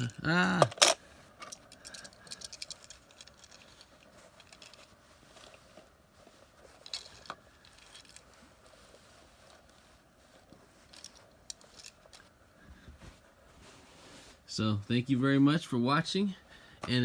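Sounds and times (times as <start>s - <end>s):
toy cars clicking and ticking: 0.0s - 3.8s.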